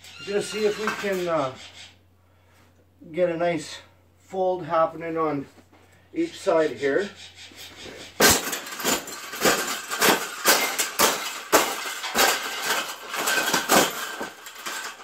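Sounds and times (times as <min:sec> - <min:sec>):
stomping on wire cage: 0:07.6 - 0:15.0
metal wires clanking: 0:07.8 - 0:15.0.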